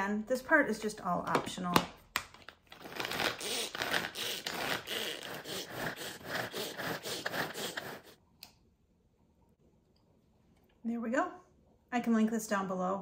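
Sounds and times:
pull-cord chopper whirring: 0:03.1 - 0:08.2
click: 0:08.4 - 0:08.6.

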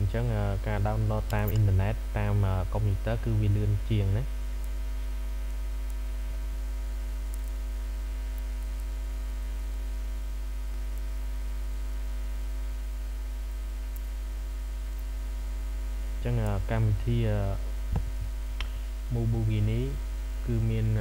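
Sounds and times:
electrical mains hum: 0:00.0 - 0:21.0
faint clicks: 0:07.3 - 0:07.6.

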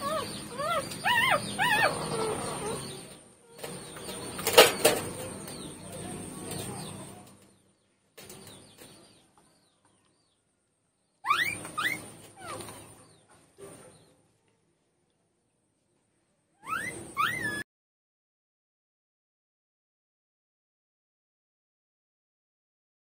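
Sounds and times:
puppies squealing: 0:00.0 - 0:04.6, 0:11.2 - 0:13.0, 0:16.6 - 0:17.7
puppies squeaking and whimpering: 0:00.0 - 0:05.9, 0:11.2 - 0:13.0, 0:16.6 - 0:17.6.

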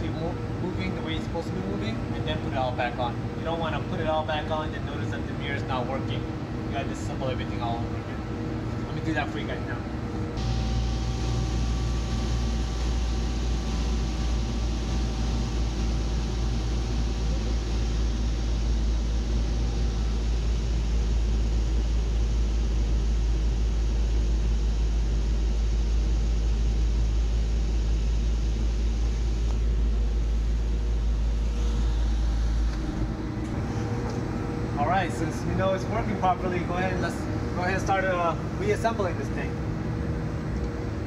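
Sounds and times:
car engine idling: 0:10.3 - 0:40.8.

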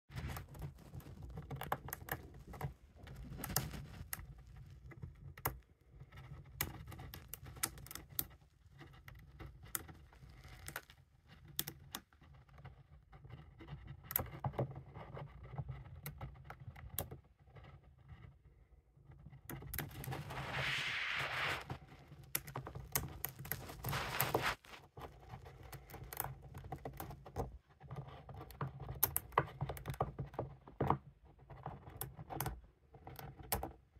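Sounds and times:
hamster gnawing on peanut shell: 0:00.1 - 0:17.0
drawn-out scraping: 0:19.9 - 0:22.0, 0:23.2 - 0:24.8.

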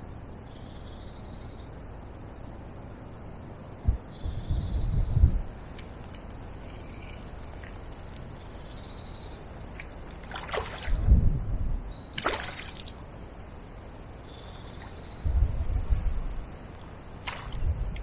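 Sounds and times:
faint bird chirps: 0:00.4 - 0:01.8, 0:04.0 - 0:07.8, 0:14.2 - 0:15.5
wind buffet on microphone: 0:03.7 - 0:08.5, 0:10.5 - 0:12.9, 0:15.0 - 0:18.0
river flowing: 0:05.5 - 0:11.0, 0:11.9 - 0:18.0
fish splashing: 0:09.8 - 0:11.0, 0:12.2 - 0:13.0.

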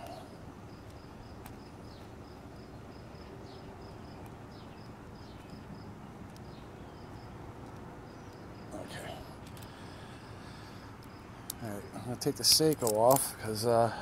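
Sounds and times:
insect chirping: 0:00.0 - 0:14.0.

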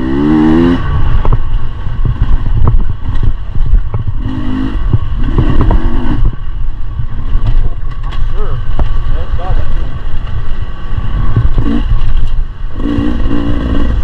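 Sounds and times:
dirt bike engine revving: 0:00.0 - 0:06.5, 0:11.0 - 0:14.0
bike clattering over rough ground: 0:07.1 - 0:09.2.

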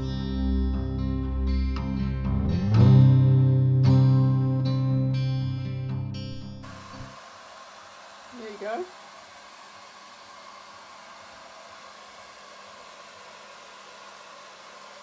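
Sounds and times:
small fan whirring: 0:06.6 - 0:15.0.

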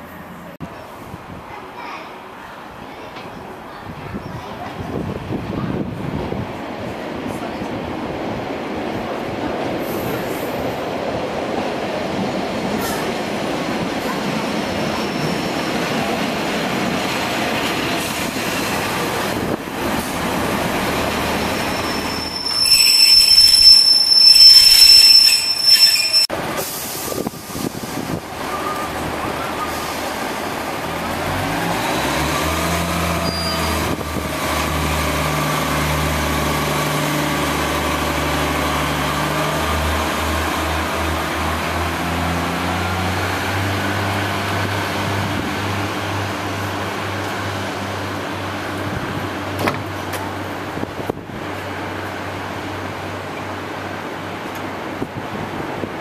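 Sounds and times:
railcar running on track: 0:00.0 - 0:56.0
train wheels squealing: 0:14.8 - 0:15.6, 0:21.4 - 0:26.3, 0:33.2 - 0:33.9
diesel engine revving: 0:30.8 - 0:45.8.

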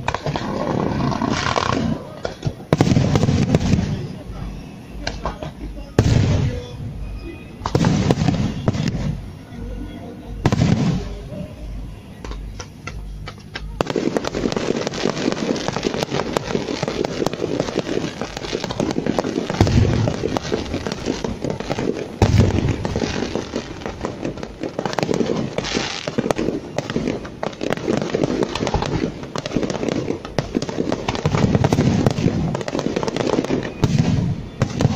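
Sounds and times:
firework cracks: 0:00.0 - 0:07.0, 0:07.6 - 0:09.5, 0:10.3 - 0:11.5, 0:12.1 - 0:34.9
fireworks crackling: 0:00.0 - 0:34.9
deep booms of shell bursts: 0:07.6 - 0:09.3.

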